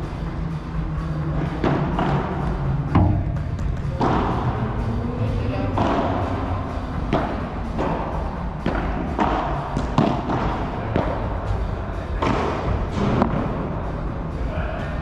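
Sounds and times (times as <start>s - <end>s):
ball bouncing off court and walls: 1.4s - 4.6s, 5.7s - 6.3s, 7.0s - 11.2s, 12.1s - 13.5s
rackets hitting ball: 1.4s - 4.7s, 5.5s - 13.6s.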